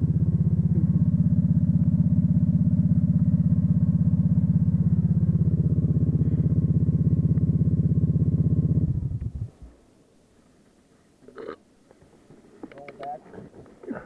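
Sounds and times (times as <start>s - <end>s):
atv engine idling: 0.0s - 9.7s.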